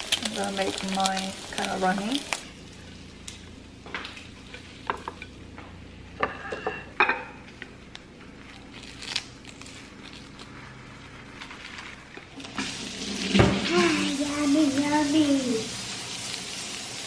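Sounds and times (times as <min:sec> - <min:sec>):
frying sizzle: 0:00.0 - 0:06.4, 0:11.2 - 0:17.0.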